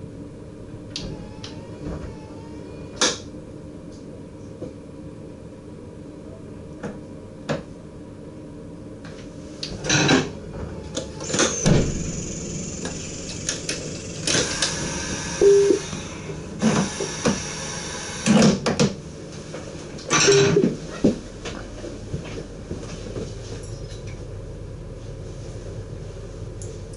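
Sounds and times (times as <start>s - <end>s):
steady low hum: 0.0s - 18.3s
short beeps: 15.4s - 15.8s.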